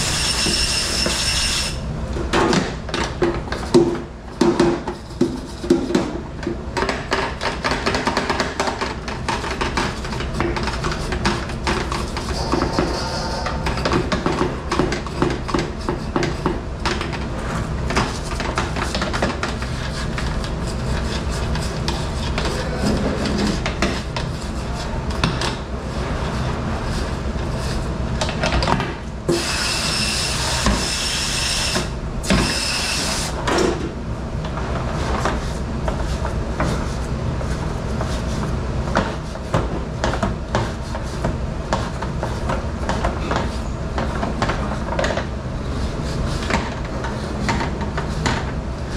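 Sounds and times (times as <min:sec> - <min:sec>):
low machine hum: 0:08.9 - 0:30.2.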